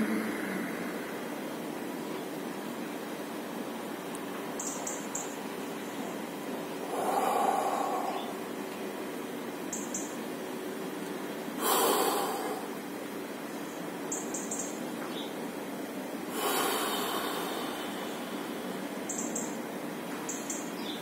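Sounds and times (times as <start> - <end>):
loud rushing exhalations: 0.0 - 1.3, 6.8 - 8.6, 11.6 - 12.8, 16.3 - 18.9
man breathing deeply: 6.8 - 8.6, 11.6 - 12.8, 16.3 - 19.0.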